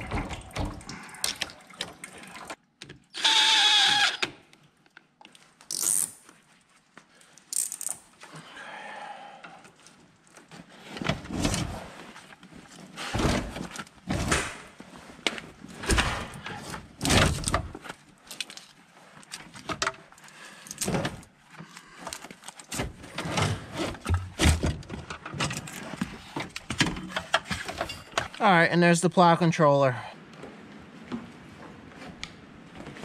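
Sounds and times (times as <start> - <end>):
cables clunking and rattling: 0.0 - 1.0, 22.1 - 28.4.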